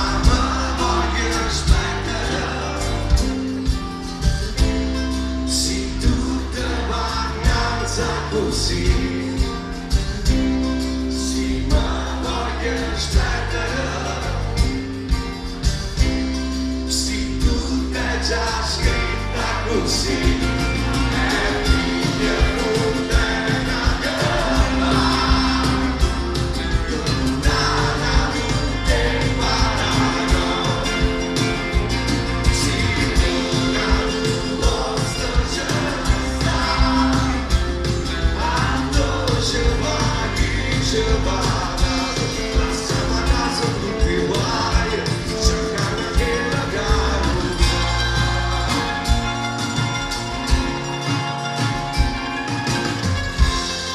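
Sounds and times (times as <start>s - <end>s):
person singing: 0.0s - 3.9s, 17.0s - 49.0s
folk-rock band playing: 0.0s - 53.9s
heavy drum beat: 0.0s - 53.9s.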